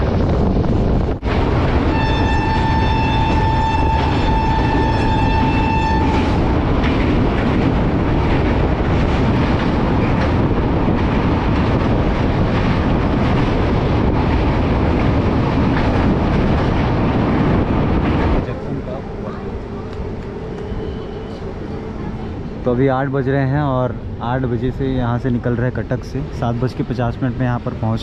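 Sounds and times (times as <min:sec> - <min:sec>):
train rumble and wheel clatter: 0:00.0 - 0:28.0
train horn: 0:01.9 - 0:06.4, 0:20.6 - 0:21.5.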